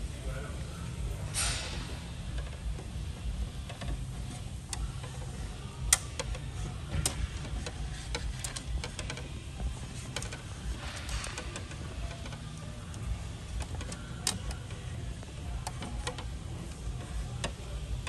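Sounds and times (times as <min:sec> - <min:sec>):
wiring clicking on plastic: 0:03.6 - 0:18.0.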